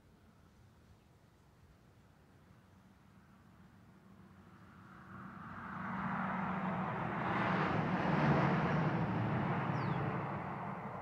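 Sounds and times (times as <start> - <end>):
car driving past: 5.1 - 11.0.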